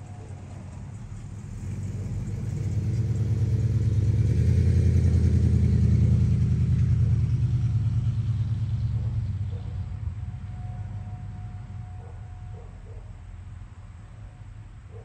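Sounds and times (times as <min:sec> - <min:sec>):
vehicle driving past: 0:00.0 - 0:14.2.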